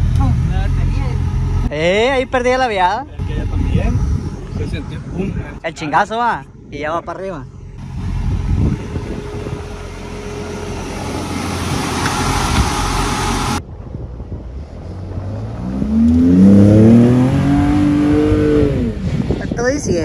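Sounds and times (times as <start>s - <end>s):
wind noise on microphone: 3.1s - 7.1s, 7.8s - 20.0s
engine idling: 6.4s - 13.6s
truck engine revving hard: 7.8s - 13.6s, 14.9s - 19.4s.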